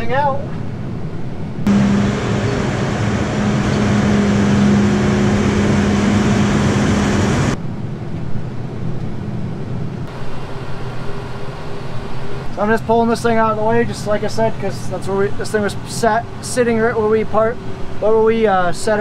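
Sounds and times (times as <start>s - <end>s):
engine rumble inside tractor cab: 1.6s - 7.6s
diesel tractor engine running: 1.7s - 7.6s.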